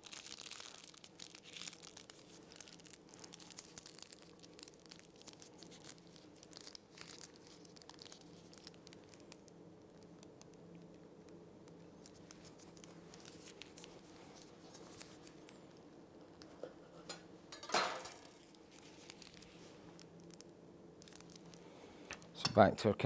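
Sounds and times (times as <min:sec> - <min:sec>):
paper bag crinkling: 0:00.0 - 0:09.5, 0:11.8 - 0:15.8, 0:17.8 - 0:20.2
low steady hum: 0:00.0 - 0:23.0.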